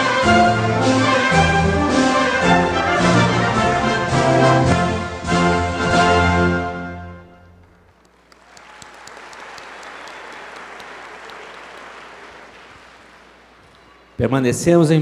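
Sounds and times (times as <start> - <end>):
audience applauding: 7.6 - 14.2.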